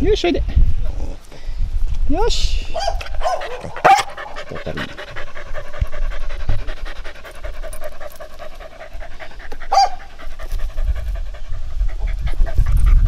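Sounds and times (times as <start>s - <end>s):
dog panting fast: 3.0s - 13.0s.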